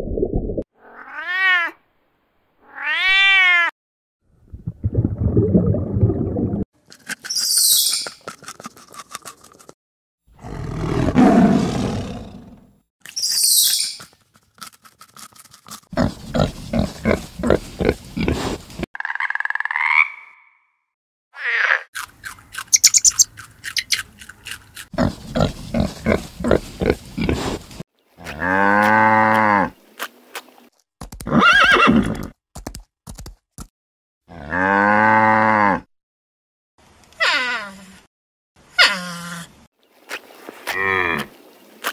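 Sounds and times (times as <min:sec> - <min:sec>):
animal clicks and squeaks: 0:07.0 - 0:09.7, 0:13.0 - 0:15.8, 0:22.5 - 0:24.8
loud rough animal growl: 0:10.3 - 0:12.7.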